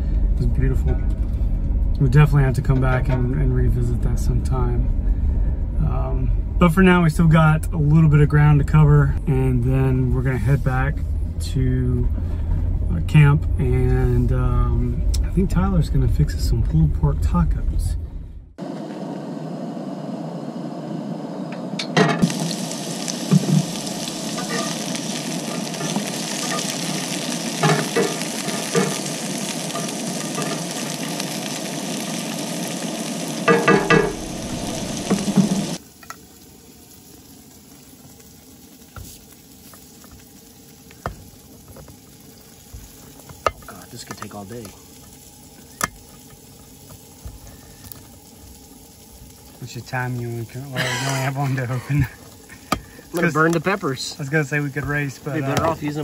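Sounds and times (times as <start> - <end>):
peppers sizzling in a skillet: 22.0 - 56.0.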